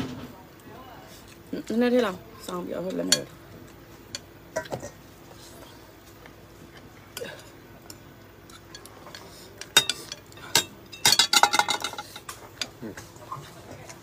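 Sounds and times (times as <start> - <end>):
plates and bowl clinking: 4.1 - 5.1, 8.5 - 13.4.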